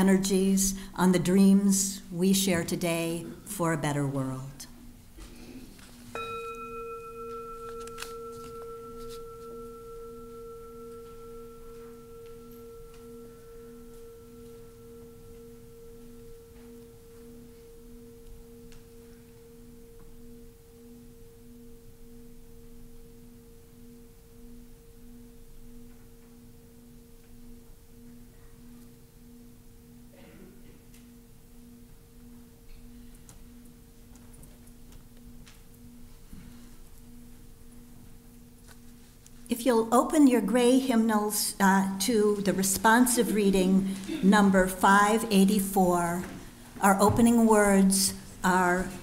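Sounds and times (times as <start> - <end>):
singing bowl ringing: 4.8 - 39.8.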